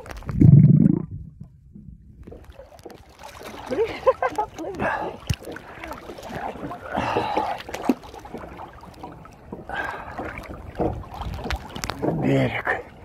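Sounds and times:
water tapping on microphone: 0:00.0 - 0:08.4
sea water splashing: 0:00.0 - 0:13.0.

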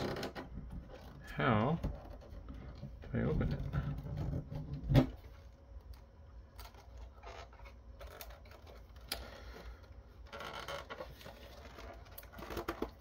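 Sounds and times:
plastic case being handled: 0:06.5 - 0:13.0.

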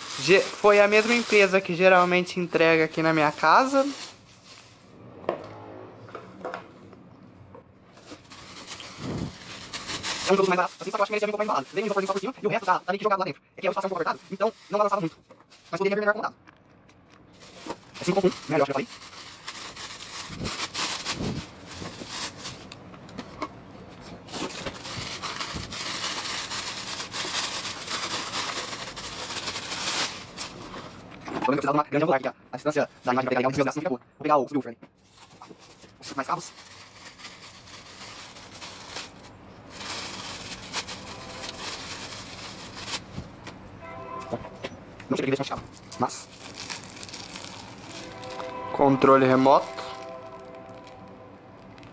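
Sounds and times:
plastic bag crinkling: 0:00.0 - 0:04.9, 0:07.9 - 0:15.9, 0:17.3 - 0:22.7, 0:24.2 - 0:31.1, 0:35.0 - 0:43.5, 0:45.2 - 0:48.6, 0:49.4 - 0:51.9.

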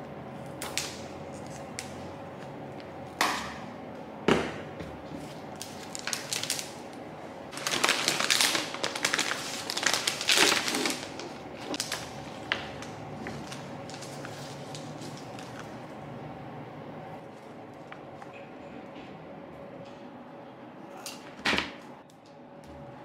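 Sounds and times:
plastic wrapping crinkling: 0:05.3 - 0:15.8.

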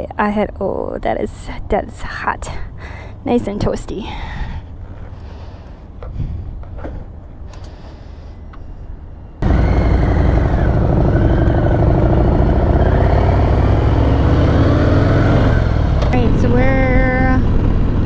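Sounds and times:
wind noise: 0:01.6 - 0:18.0
motorcycle engine: 0:09.4 - 0:18.0.

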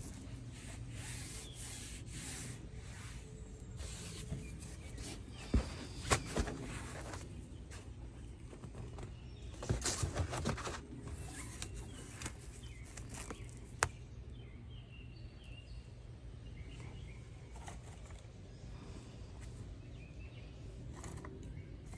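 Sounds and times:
low steady hum: 0:00.0 - 0:21.9
hands rubbing on felt: 0:00.5 - 0:05.3.

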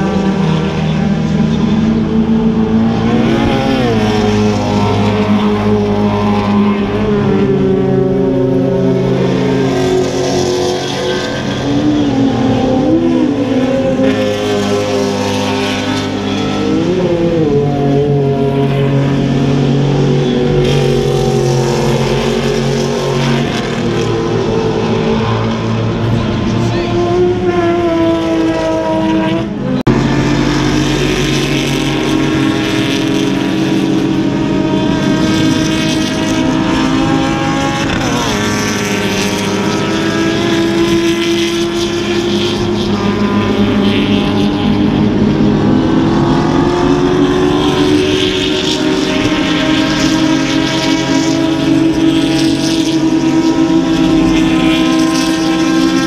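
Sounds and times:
racing car engines passing: 0:00.0 - 0:56.0.

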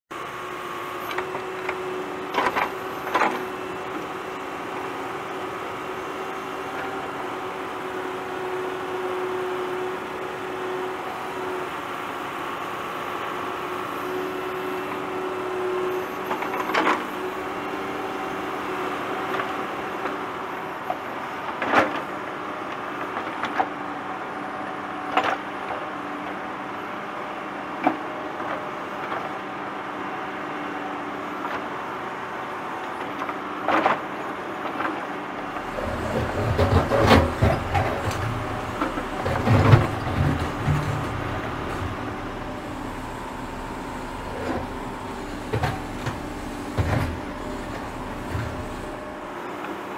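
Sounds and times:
tractor engine running: 0:35.4 - 0:49.4.

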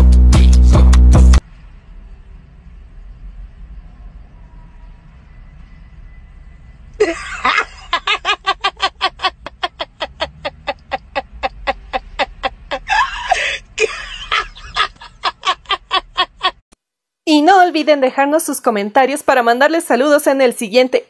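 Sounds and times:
cackling laughter: 0:07.0 - 0:16.6.

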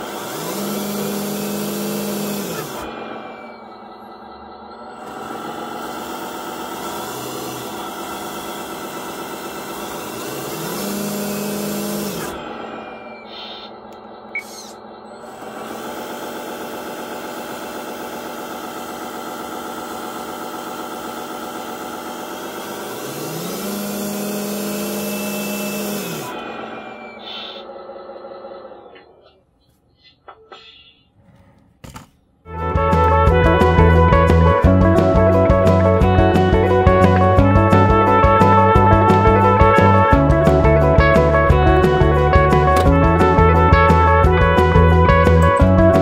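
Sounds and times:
electric motor whining: 0:00.0 - 0:29.1, 0:32.5 - 0:46.0
click: 0:13.3 - 0:14.8.

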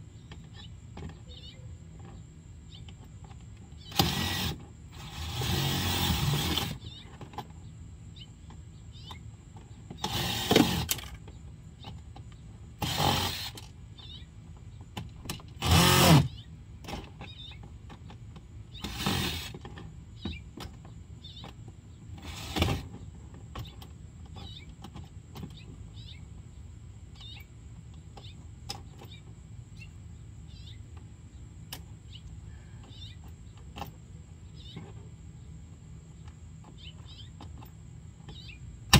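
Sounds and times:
faint chirping: 0:00.2 - 0:03.0, 0:28.2 - 0:31.4, 0:32.1 - 0:33.7
small electric power tool: 0:03.9 - 0:06.8, 0:10.0 - 0:11.0, 0:12.8 - 0:13.6, 0:15.6 - 0:16.3, 0:18.8 - 0:19.6, 0:22.3 - 0:22.8.

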